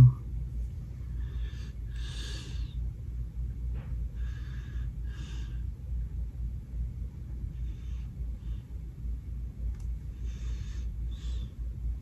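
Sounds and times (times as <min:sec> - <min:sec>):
steady low rumble: 0:00.0 - 0:12.0
man breathing: 0:01.0 - 0:02.9, 0:04.0 - 0:05.8, 0:10.1 - 0:11.6.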